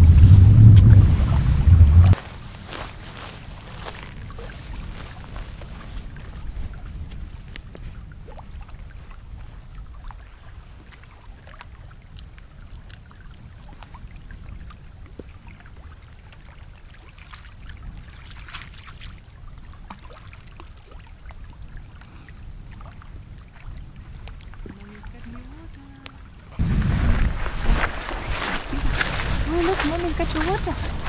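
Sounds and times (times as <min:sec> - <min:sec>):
water splash: 0:00.0 - 0:03.1
wind rumble on microphone: 0:00.0 - 0:31.0
small waves lapping on rocks: 0:02.2 - 0:26.6.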